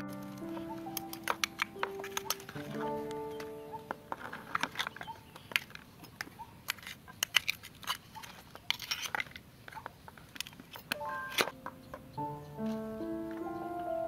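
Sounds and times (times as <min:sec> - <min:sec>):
metal spoons scraping mussel shells: 0:00.1 - 0:03.4, 0:04.1 - 0:09.8.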